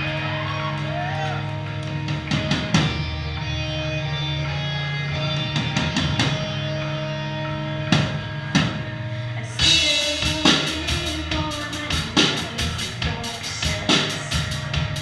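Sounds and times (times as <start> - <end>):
ringing electric guitar chords: 0.0 - 15.0
drum kit with cymbals: 9.6 - 15.0.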